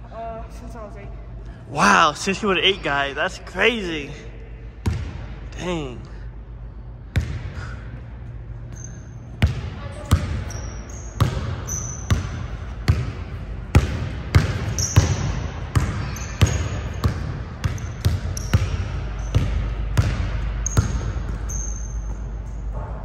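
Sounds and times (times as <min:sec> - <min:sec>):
basketball bouncing: 0:04.8 - 0:05.4, 0:07.1 - 0:07.8, 0:08.6 - 0:23.0
sneaker squeaks: 0:08.5 - 0:13.3, 0:14.4 - 0:23.0.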